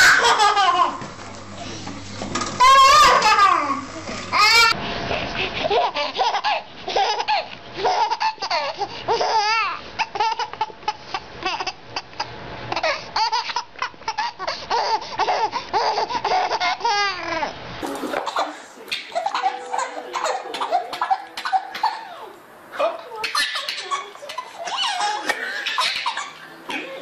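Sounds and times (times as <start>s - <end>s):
baby laughing hard: 0.0s - 1.0s, 2.6s - 4.8s, 5.6s - 17.4s, 18.0s - 22.4s, 23.2s - 27.0s.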